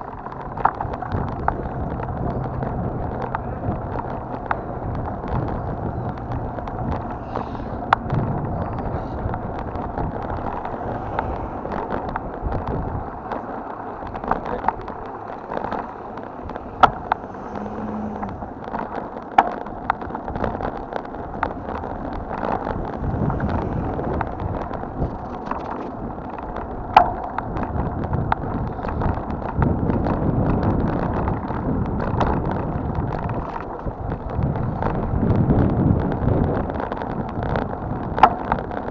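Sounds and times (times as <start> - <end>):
bicycle tyre rumble on asphalt: 0.0 - 38.9
small rattles and clicks: 0.0 - 38.9
wind on microphone: 0.0 - 38.9.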